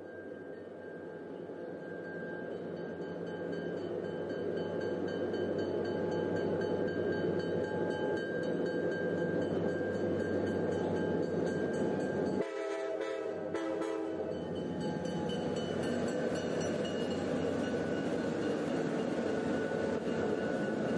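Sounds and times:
train rumbling: 0.0 - 20.9
train horn chord: 12.4 - 14.5.

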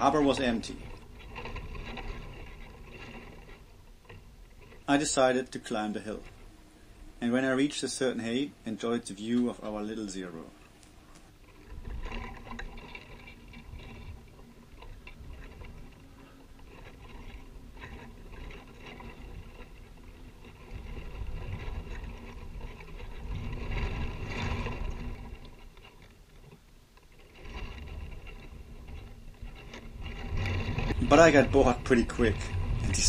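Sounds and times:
wind buffeting microphone: 11.3 - 25.7, 27.4 - 33.0.

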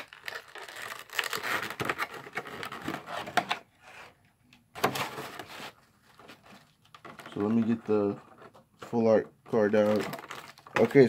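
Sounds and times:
packaging crinkling and rustling: 0.0 - 3.5, 8.9 - 11.0.

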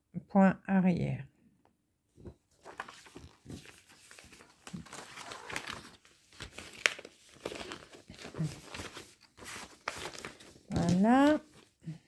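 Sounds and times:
plastic packaging crinkling: 2.6 - 11.6.

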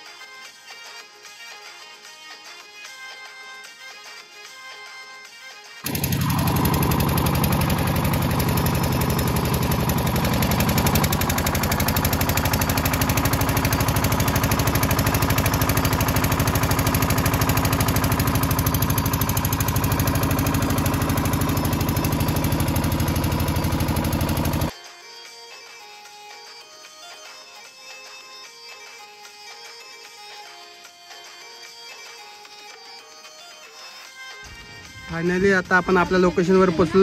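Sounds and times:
outboard motor running: 5.8 - 24.7.

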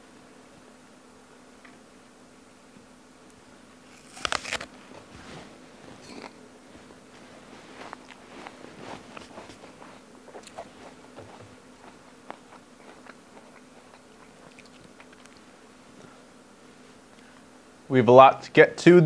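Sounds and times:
person chewing crisp apple: 3.9 - 5.0, 7.8 - 15.5.

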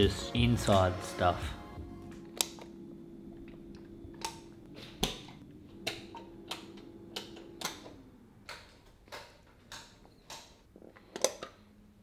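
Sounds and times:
faint steady hum: 1.7 - 8.9.

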